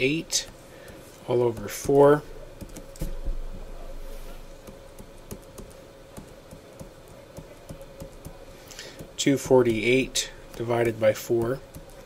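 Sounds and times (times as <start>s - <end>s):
faint electrical hum: 0.0s - 12.0s
stylus tapping on tablet: 4.6s - 8.4s.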